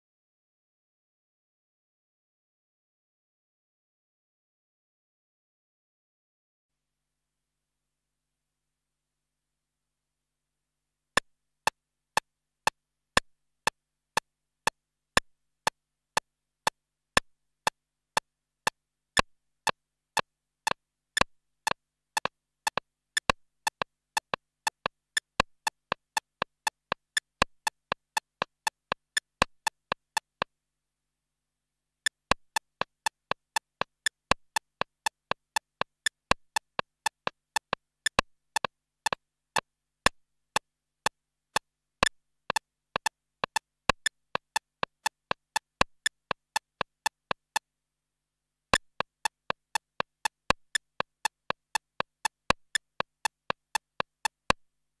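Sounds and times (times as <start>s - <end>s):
drum machine percussion clicks: 22.2s - 30.5s, 32.1s - 39.2s, 42.0s - 47.6s, 48.8s - 54.6s.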